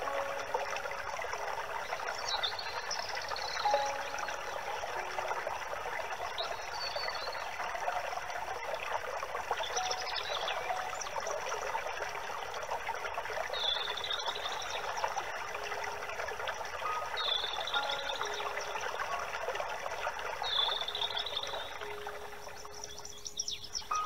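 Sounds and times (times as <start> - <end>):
stream trickling: 0.0 - 24.0
bird chirps: 9.7 - 11.4, 16.8 - 19.3, 20.4 - 24.0.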